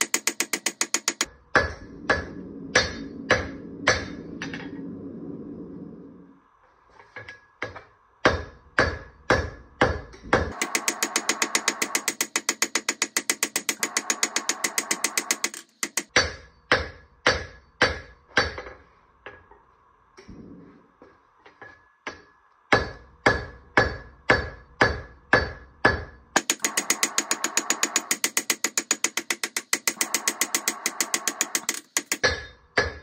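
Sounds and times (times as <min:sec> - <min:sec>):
hammer striking steel on anvil: 0:00.0 - 0:04.6, 0:07.2 - 0:19.5, 0:21.5 - 0:33.0.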